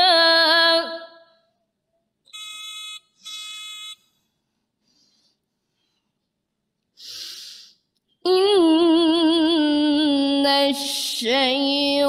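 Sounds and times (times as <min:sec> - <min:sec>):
woman reciting melodically: 0:08.2 - 0:12.0.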